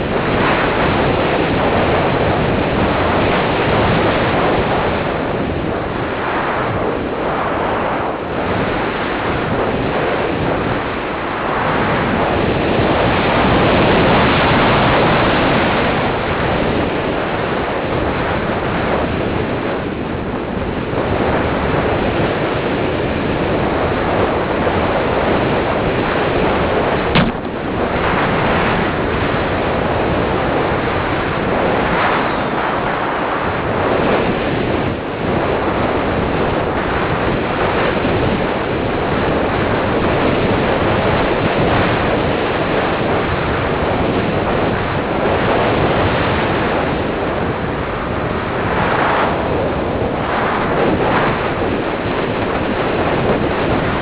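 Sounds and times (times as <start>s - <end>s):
wind rushing over microphone: 0.0s - 54.0s
short click: 27.2s - 27.6s.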